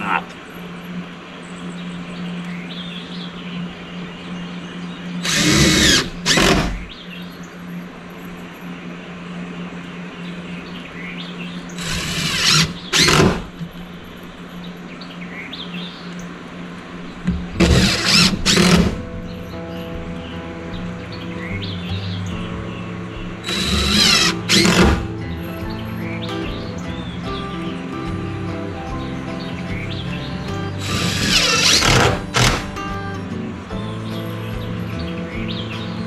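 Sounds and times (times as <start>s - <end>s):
steady low hum: 0.0s - 36.0s
cordless drill driving screws: 5.2s - 6.8s, 11.8s - 13.5s, 17.6s - 19.0s, 23.4s - 25.1s, 30.8s - 32.8s.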